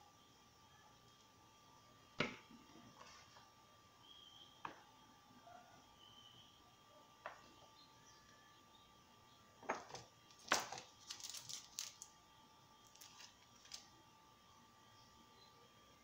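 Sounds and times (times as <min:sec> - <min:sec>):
sachet crinkling: 0:10.4 - 0:12.1, 0:12.8 - 0:13.9.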